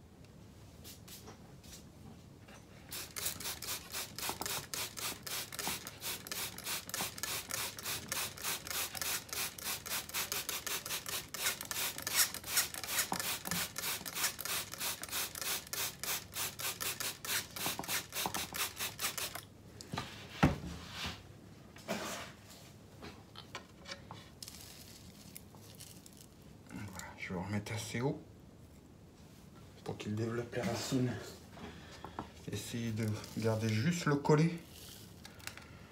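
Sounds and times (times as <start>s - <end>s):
spray bottle squirting: 2.9s - 19.4s.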